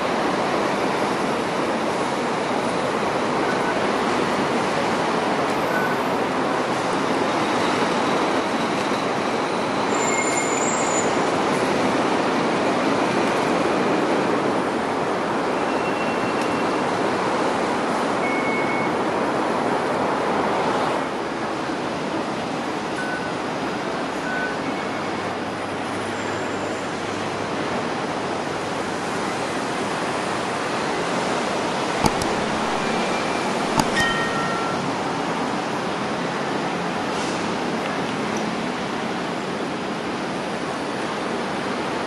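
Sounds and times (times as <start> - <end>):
traffic noise: 0.0 - 42.0
faint high squeals: 8.9 - 11.2.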